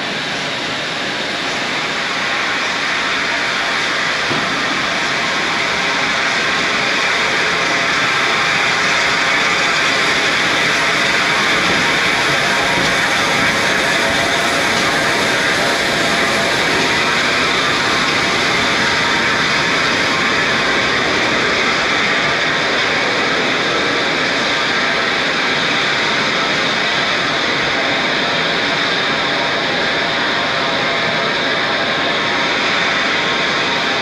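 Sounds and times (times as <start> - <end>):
steam locomotive hissing steam: 0.0 - 34.0.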